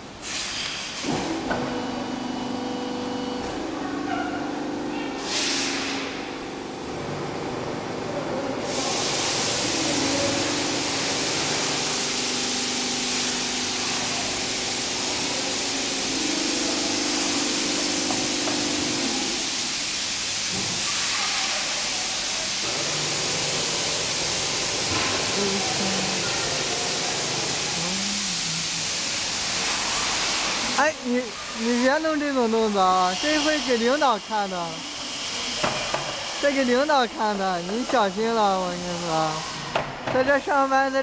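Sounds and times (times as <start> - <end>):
press hissing: 4.6 - 6.8, 8.6 - 21.0, 22.5 - 39.7.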